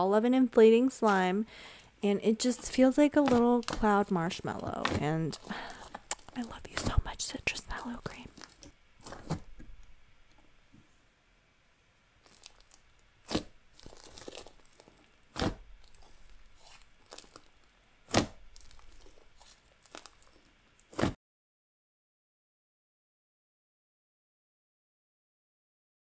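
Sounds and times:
slime squishing: 0:02.5 - 0:09.9, 0:12.2 - 0:21.2
air pockets popping in slime: 0:02.6 - 0:07.1, 0:08.0 - 0:09.8, 0:12.2 - 0:17.5, 0:18.1 - 0:21.2.

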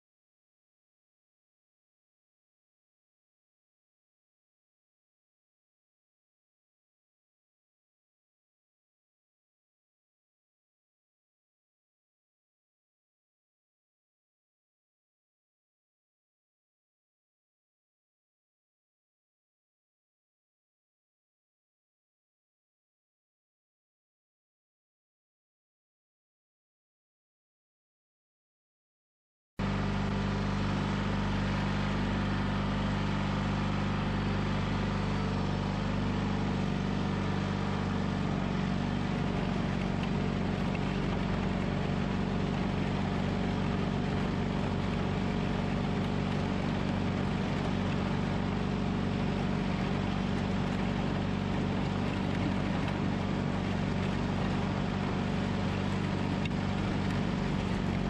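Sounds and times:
garden tractor engine running: 0:29.6 - 0:58.0.

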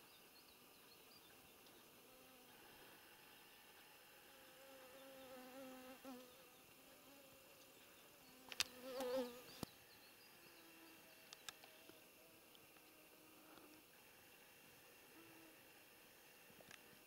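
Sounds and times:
flying insect buzzing: 0:01.9 - 0:09.7.

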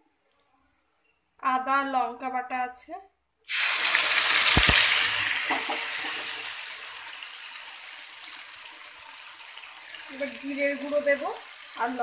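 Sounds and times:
paste sizzling in hot oil: 0:03.5 - 0:12.0.

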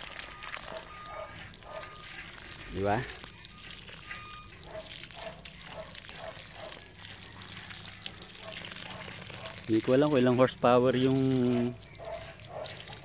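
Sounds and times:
hose water trickling onto soil: 0:00.0 - 0:13.0.

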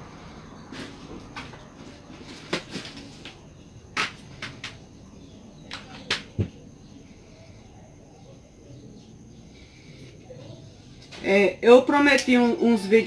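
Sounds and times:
crafting clicks and rustles: 0:00.7 - 0:04.8.

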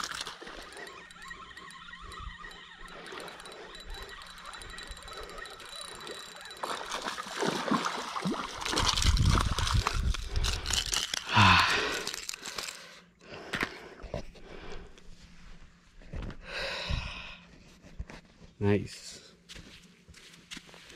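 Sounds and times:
fish splashing and thrashing: 0:00.0 - 0:12.8.

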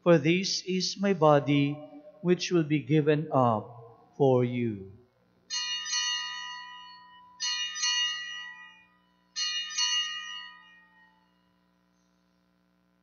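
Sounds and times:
altar bells ringing: 0:05.5 - 0:11.5.

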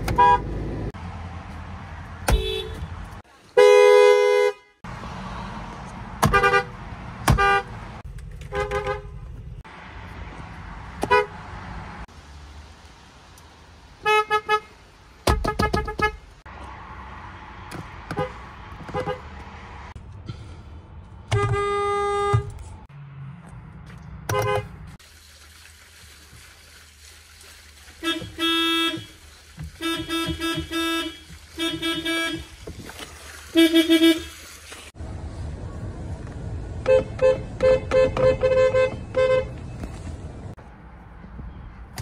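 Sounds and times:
car horns honking: 0:00.0 - 0:00.7, 0:02.2 - 0:04.8, 0:06.2 - 0:09.4, 0:11.0 - 0:11.4, 0:14.0 - 0:16.4, 0:17.7 - 0:19.4, 0:21.3 - 0:22.7, 0:24.2 - 0:25.0, 0:28.0 - 0:32.6, 0:33.5 - 0:34.4, 0:36.8 - 0:39.8.

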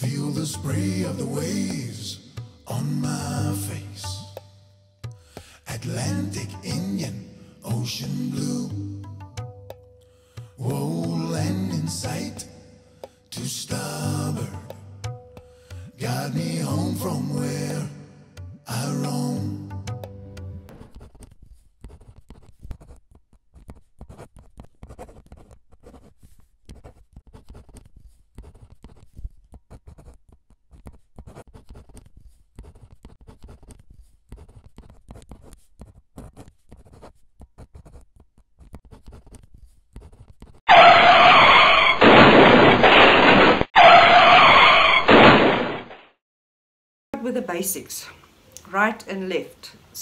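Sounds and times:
pen scratching on paper: 0:20.8 - 0:40.7.

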